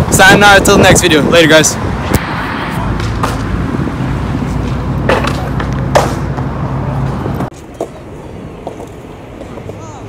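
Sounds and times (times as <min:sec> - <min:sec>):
skateboard wheels rolling on concrete: 0:00.0 - 0:10.0
skateboard clacks: 0:05.0 - 0:06.5, 0:07.7 - 0:10.0.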